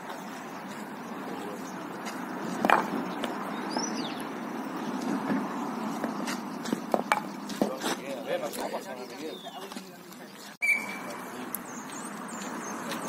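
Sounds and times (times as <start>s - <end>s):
wooden bat knocking on ground: 2.6s - 3.4s, 6.0s - 7.8s
short high chirp: 10.6s - 11.2s.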